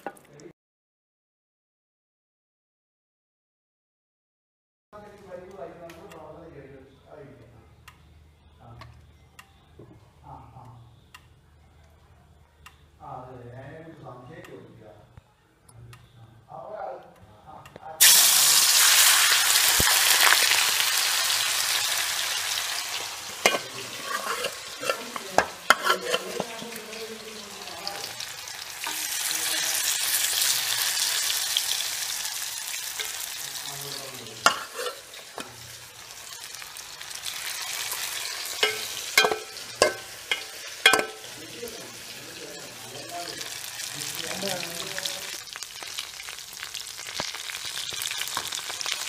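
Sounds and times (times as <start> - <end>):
chicken deep-frying in oil: 18.0 - 49.0
metal spoon clinking on pan: 23.4 - 27.0, 32.9 - 33.4, 34.4 - 35.7, 37.5 - 41.4.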